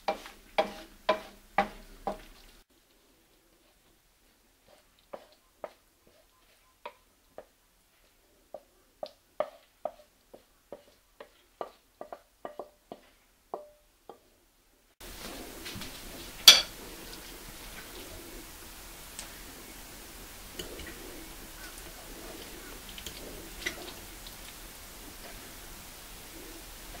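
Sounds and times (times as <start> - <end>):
wooden spatula tapping frying pan: 0.0 - 2.3, 8.5 - 14.2, 16.5 - 16.7
room hiss: 0.0 - 6.0, 12.0 - 27.0.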